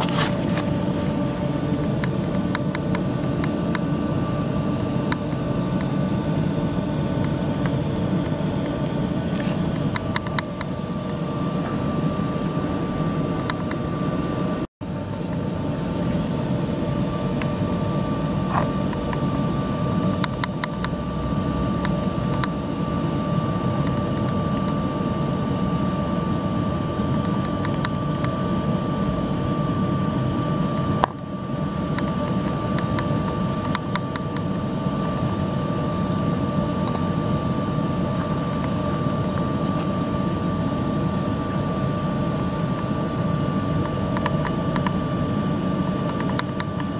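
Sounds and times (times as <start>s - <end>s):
machinery drone with high whine: 0.0s - 46.9s.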